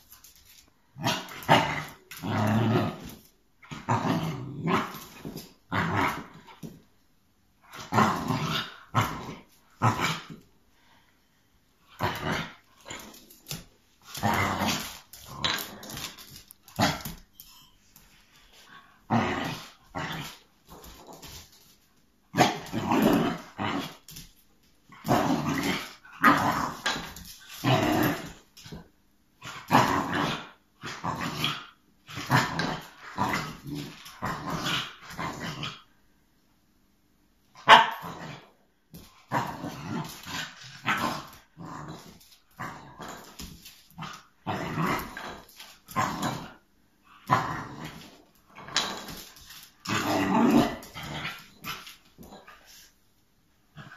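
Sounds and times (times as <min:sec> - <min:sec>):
dog barking: 0:37.6 - 0:38.0
dog growling: 0:49.9 - 0:52.5.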